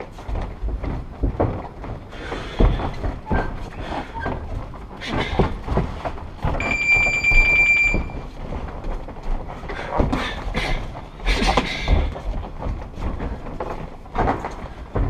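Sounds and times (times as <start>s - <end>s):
rapidly pulsing electronic beep: 6.6s - 8.2s.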